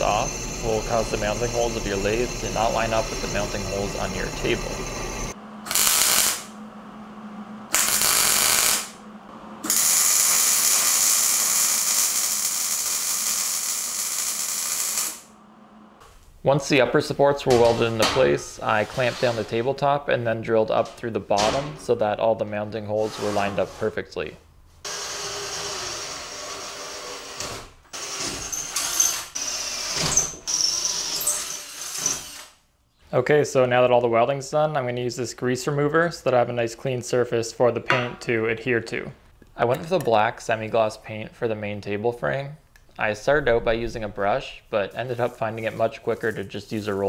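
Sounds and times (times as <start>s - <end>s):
welder arc crackling: 0.0s - 6.6s, 7.7s - 9.0s, 9.6s - 15.4s
cordless drill whining: 28.0s - 32.6s.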